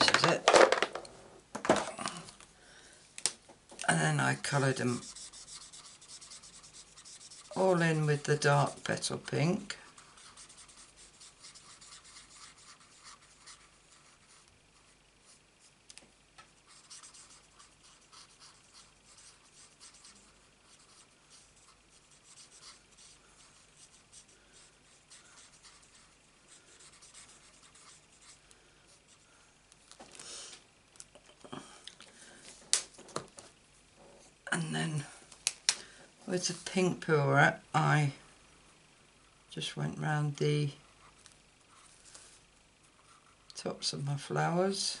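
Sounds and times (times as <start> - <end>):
marker scratching on cardstock: 4.5 - 7.8, 9.9 - 15.4, 16.6 - 28.4.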